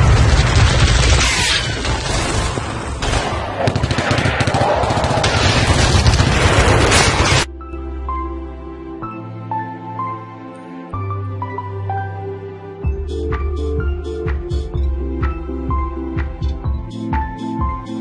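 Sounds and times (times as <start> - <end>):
explosion rumble: 0.0 - 7.4
rapid gunfire: 0.0 - 7.5
soft music: 7.5 - 18.0.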